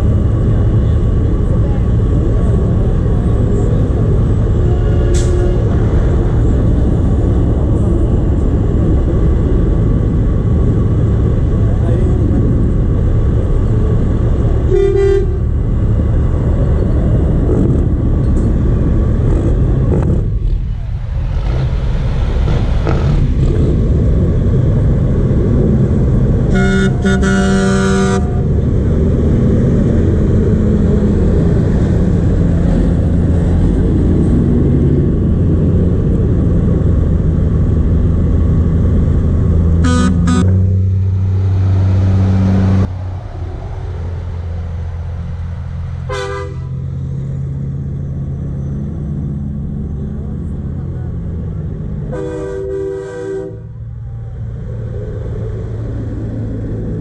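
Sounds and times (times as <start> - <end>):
diesel engines rumbling: 0.0 - 57.0
truck horn blasts: 4.6 - 5.8, 14.7 - 15.5, 26.4 - 28.6, 39.8 - 40.7, 46.1 - 46.8, 52.1 - 53.7.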